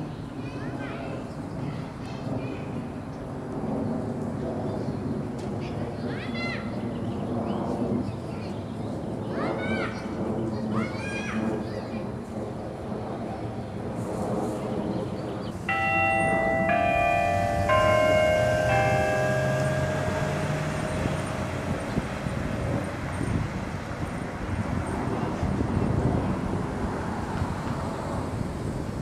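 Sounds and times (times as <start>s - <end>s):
street traffic hum: 15.5s - 29.0s
bells chiming: 15.7s - 23.6s.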